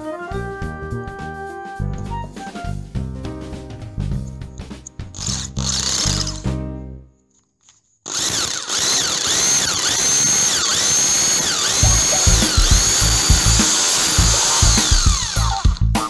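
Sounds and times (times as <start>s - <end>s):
background music with a beat: 0.0s - 5.6s, 11.8s - 16.0s
power drill whining: 5.2s - 6.5s, 8.0s - 15.8s.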